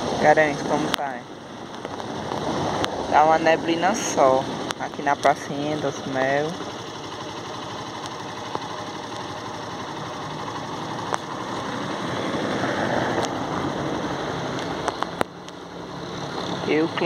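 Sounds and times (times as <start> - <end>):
wet traffic noise: 10.9 - 17.0.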